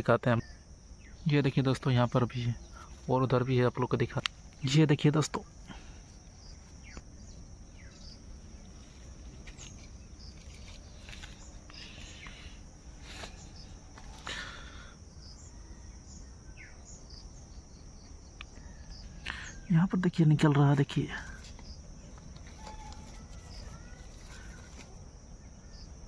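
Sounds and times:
insects chirring: 0.0 - 26.0
leaves rustling: 2.2 - 14.9, 20.5 - 25.8.

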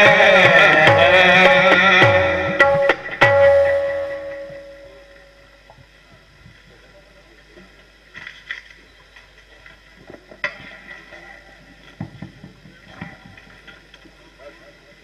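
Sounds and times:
faint voices: 4.7 - 15.0.

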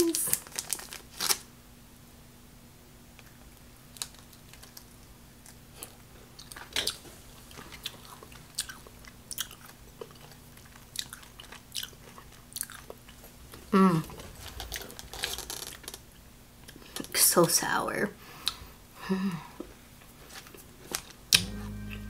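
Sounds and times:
candy crunching: 0.0 - 1.5, 3.9 - 6.7.

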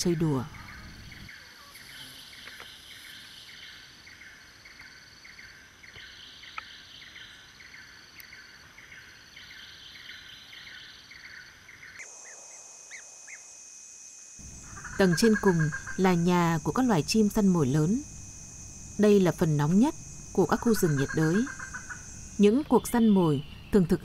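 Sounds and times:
high insect hiss: 0.0 - 24.0
insect buzzing: 0.0 - 24.0
insect chirping: 0.0 - 24.0.

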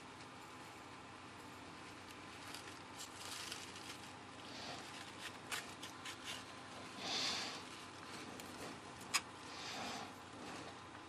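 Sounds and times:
soft rustle: 1.5 - 9.2.

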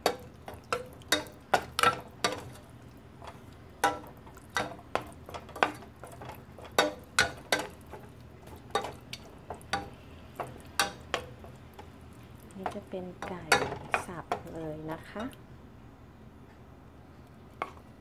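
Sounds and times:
wooden spoon knocking on saucepan: 12.6 - 14.6.

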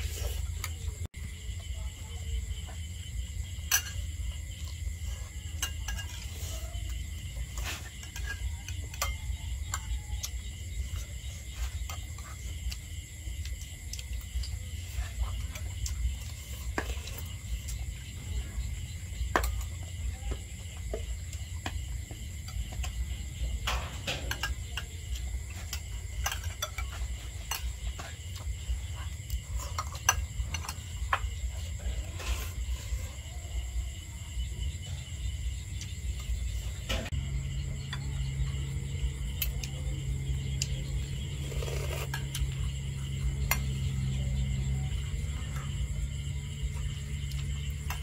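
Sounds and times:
spoons scraping ceramic bowls: 5.3 - 10.0, 41.4 - 42.4.

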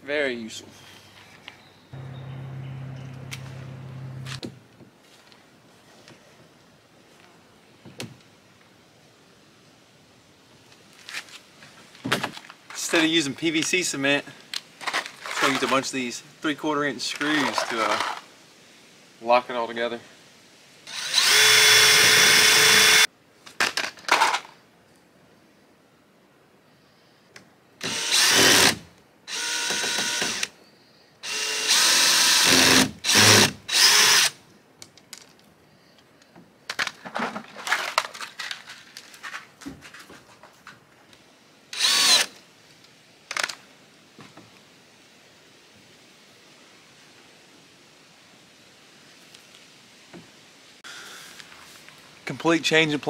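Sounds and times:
cordless drill driving screws: 20.9 - 23.1, 27.8 - 30.5, 31.2 - 34.3, 41.8 - 42.4.

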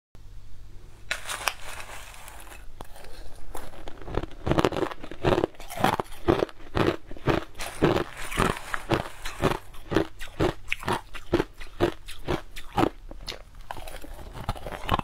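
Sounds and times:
ice being crunched: 1.1 - 12.4
plastic spoon scraping ice: 1.1 - 12.4.

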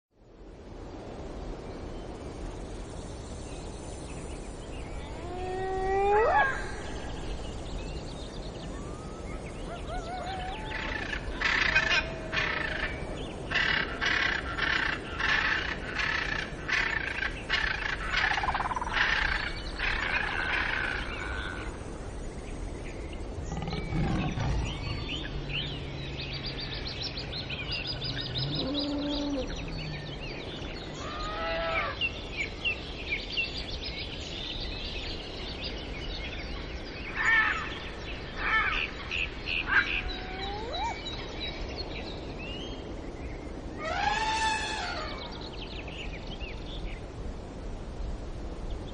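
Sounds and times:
birds calling and chirping: 3.6 - 47.0
low drawn-out animal call: 28.3 - 30.1, 43.8 - 45.3.

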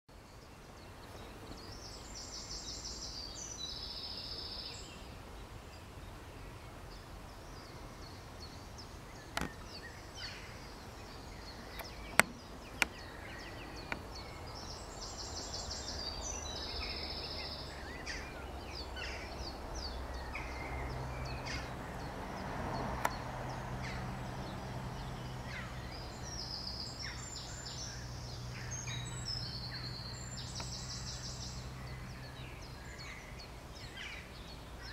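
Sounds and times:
small birds singing: 0.1 - 34.9
bird chirps: 0.2 - 34.9
sharp clicks: 11.7 - 13.0, 23.0 - 23.2.

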